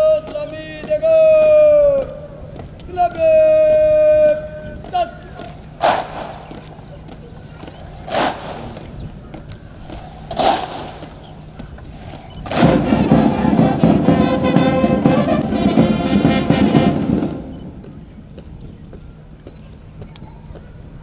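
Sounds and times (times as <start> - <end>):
loud shouts: 0.0 - 5.5
brass band playing held chords: 12.5 - 17.8.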